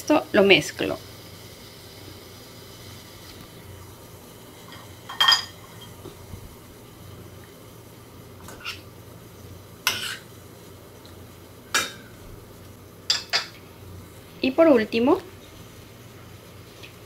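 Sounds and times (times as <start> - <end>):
metal spoon scraping frying pan: 8.5 - 8.9, 9.9 - 10.3.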